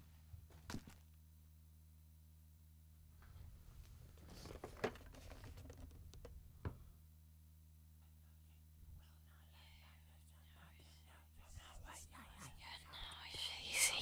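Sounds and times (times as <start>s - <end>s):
quiet low hum: 0.0s - 14.0s
rustling and scraping: 3.2s - 6.2s.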